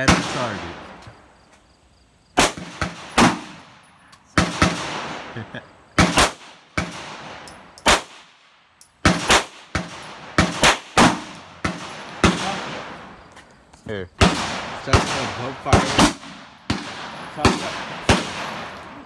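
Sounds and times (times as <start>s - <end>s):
pistol gunshots with echo: 0.0s - 1.0s, 2.4s - 5.3s, 6.0s - 13.2s, 14.2s - 19.0s.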